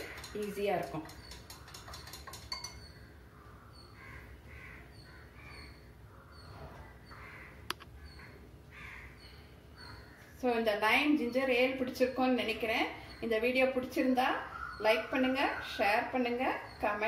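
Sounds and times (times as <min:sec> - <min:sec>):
stirrer clinking on glass: 0:00.0 - 0:02.9
crow cawing: 0:03.4 - 0:06.5, 0:07.1 - 0:09.2.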